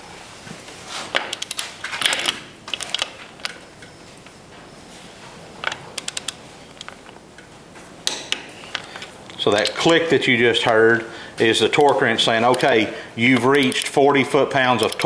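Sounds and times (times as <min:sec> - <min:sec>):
torque wrench click: 0:01.3 - 0:01.6, 0:11.7 - 0:12.8, 0:13.5 - 0:14.0
wrench ratchet ticking: 0:11.7 - 0:14.0, 0:14.8 - 0:15.0.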